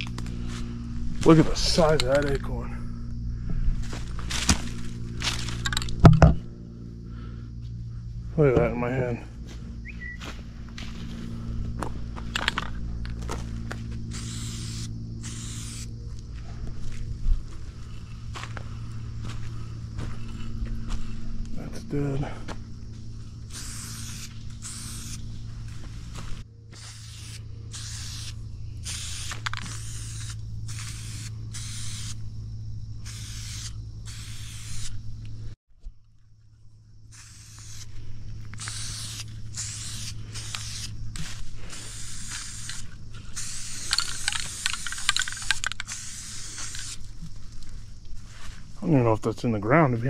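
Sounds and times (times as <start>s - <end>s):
tractor engine humming: 0.0s - 50.0s
brush rustling and scraping: 3.8s - 5.7s, 22.9s - 27.4s, 37.4s - 48.9s.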